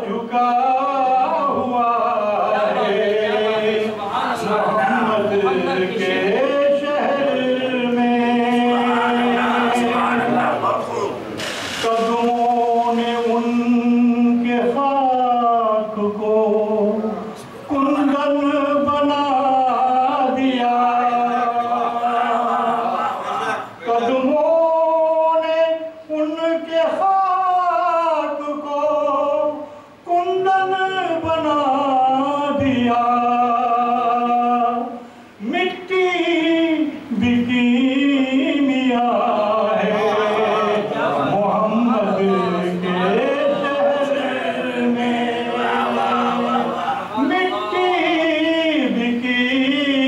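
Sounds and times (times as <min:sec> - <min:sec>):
man singing unaccompanied: 0:00.0 - 0:50.0
singer breathing: 0:35.0 - 0:35.4.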